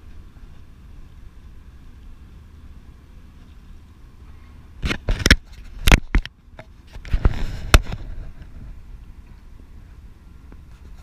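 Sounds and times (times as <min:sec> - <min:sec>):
rustling scrape: 0:06.8 - 0:08.8.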